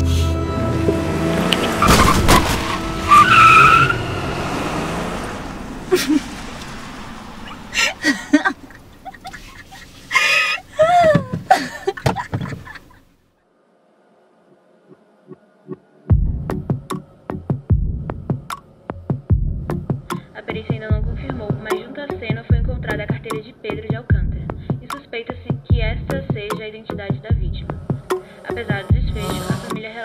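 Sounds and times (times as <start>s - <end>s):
car engine revving: 0.0s - 9.0s
tyres skidding and squealing: 0.3s - 10.7s
woman laughing: 5.9s - 6.3s, 7.4s - 13.1s.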